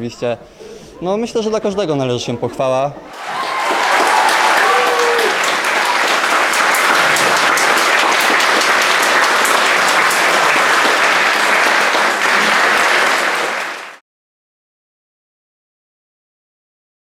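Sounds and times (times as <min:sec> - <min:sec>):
audience applauding: 0:03.1 - 0:14.0.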